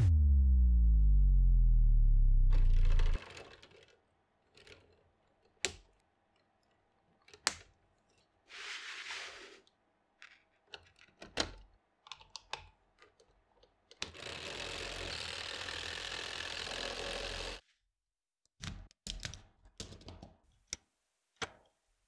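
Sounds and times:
plastic parts clicking and snapping: 0:03.2 - 0:08.3, 0:10.2 - 0:14.2, 0:18.6 - 0:20.8
small electric motor running: 0:14.1 - 0:17.6.

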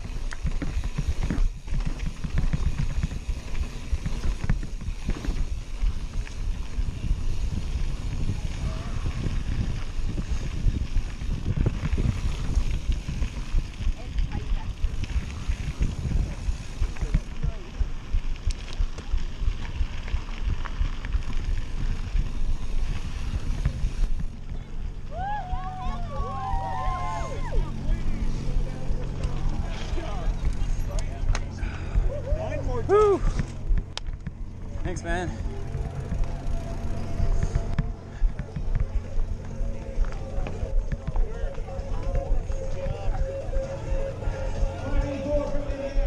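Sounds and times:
wind on microphone: 0:00.0 - 0:30.9
bike knocking and rattling: 0:00.0 - 0:46.0
tyres rumbling on dirt: 0:00.0 - 0:46.0.

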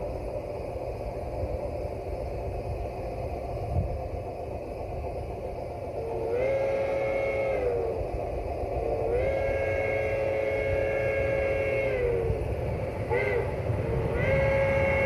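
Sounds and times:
steady low rumble: 0:00.0 - 0:15.0
steam locomotive chime whistle: 0:06.0 - 0:08.1, 0:08.8 - 0:15.0.

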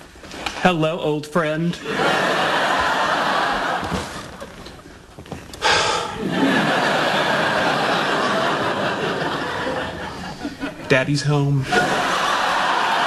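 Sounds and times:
studio audience laughing: 0:01.8 - 0:04.6, 0:06.2 - 0:11.0, 0:11.6 - 0:13.0.

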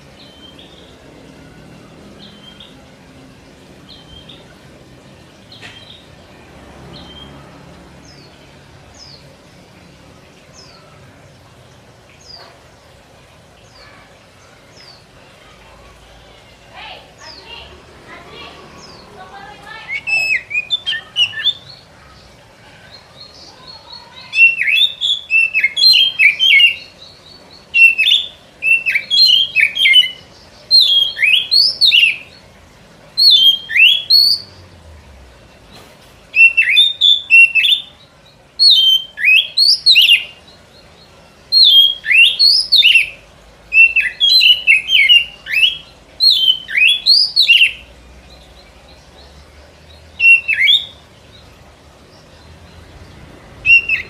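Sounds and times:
bird song whistled phrases: 0:19.8 - 0:21.8, 0:23.4 - 0:26.9, 0:27.8 - 0:32.4, 0:33.2 - 0:34.5, 0:36.4 - 0:37.9, 0:38.6 - 0:40.4, 0:41.5 - 0:47.8, 0:50.2 - 0:51.0, 0:53.6 - 0:54.0.

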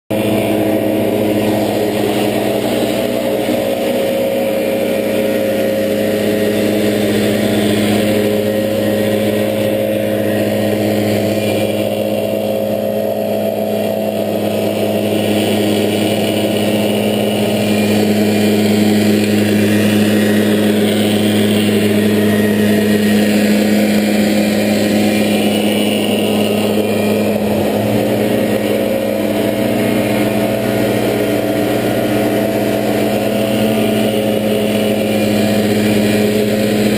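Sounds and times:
leaf blower engine hum: 0:00.1 - 0:36.9.

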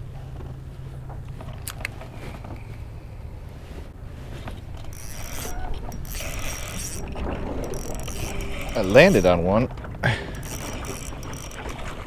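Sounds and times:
fishing reel cranking: 0:04.8 - 0:09.7, 0:10.3 - 0:12.0.

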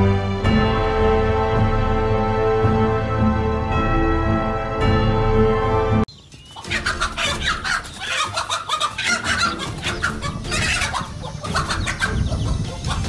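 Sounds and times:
hen squawking and clucking: 0:06.5 - 0:13.0.

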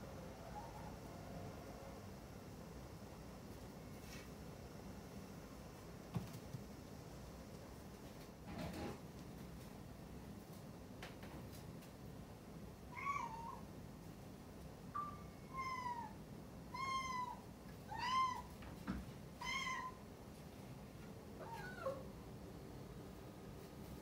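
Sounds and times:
cat meowing: 0:12.9 - 0:13.7, 0:15.0 - 0:18.5, 0:19.4 - 0:20.0, 0:21.4 - 0:22.0.

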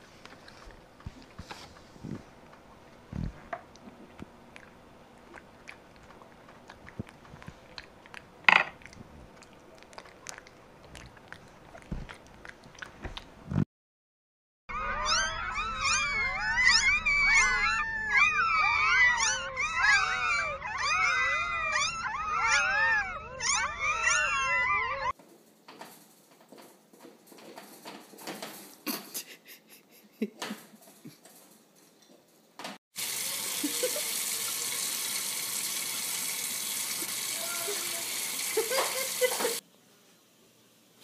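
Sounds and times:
newborn puppies squeaking and crying: 0:14.7 - 0:25.2.

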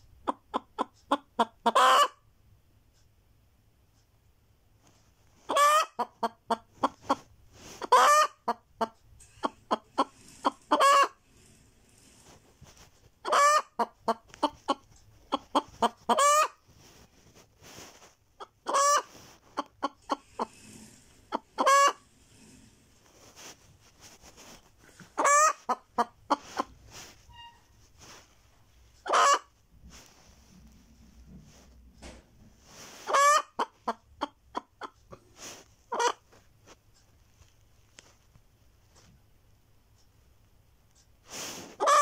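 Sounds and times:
hen cackling: 0:00.3 - 0:02.2, 0:05.5 - 0:07.2, 0:07.8 - 0:11.2, 0:13.2 - 0:16.6, 0:18.4 - 0:20.5, 0:21.3 - 0:22.0, 0:25.0 - 0:26.7, 0:29.0 - 0:29.5, 0:33.1 - 0:35.0, 0:35.9 - 0:36.2, 0:41.8 - 0:42.0.

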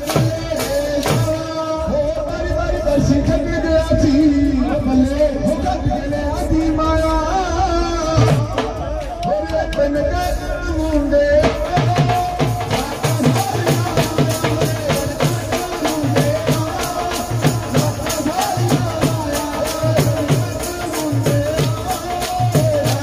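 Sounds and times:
dhol drum beat: 0:00.0 - 0:05.0, 0:08.0 - 0:23.0
man singing into a microphone: 0:00.0 - 0:23.0
jingling clacking percussion: 0:12.0 - 0:23.0.

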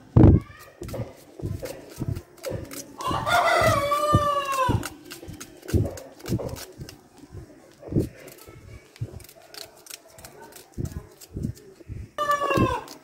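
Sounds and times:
knife slicing onion: 0:00.4 - 0:13.0
rooster crowing: 0:03.0 - 0:04.9, 0:12.2 - 0:13.0.

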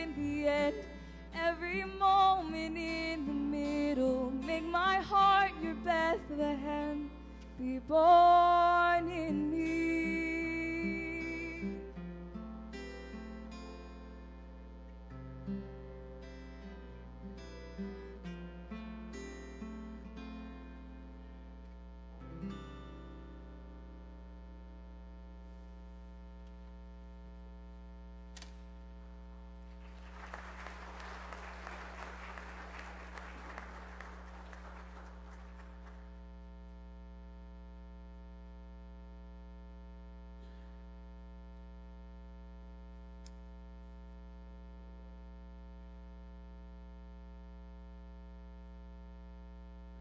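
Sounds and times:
electrical mains hum: 0:00.0 - 0:50.0
congregation applauding: 0:29.6 - 0:36.3.

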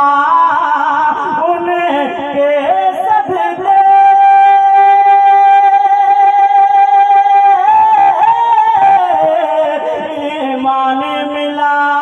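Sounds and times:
man singing through a microphone: 0:00.0 - 0:12.0.

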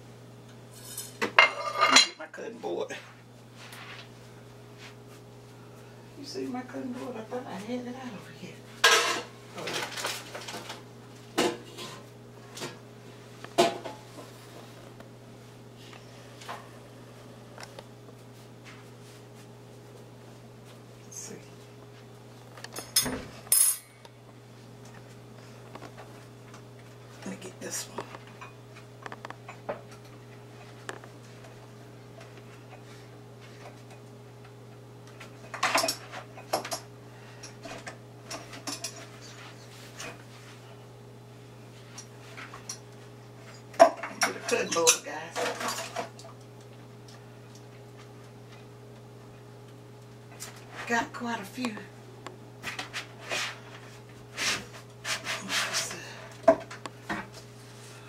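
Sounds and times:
steady low hum: 0:00.0 - 0:58.0
kitchenware clatter: 0:00.7 - 0:02.2, 0:08.8 - 0:10.8, 0:22.7 - 0:23.9, 0:35.4 - 0:36.9, 0:37.5 - 0:39.4, 0:43.7 - 0:46.2.

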